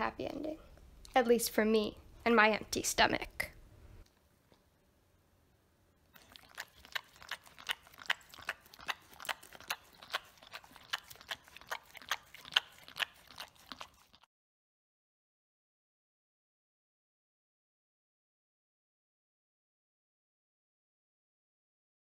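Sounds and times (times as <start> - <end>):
dog licking plastic lid: 6.1 - 14.2.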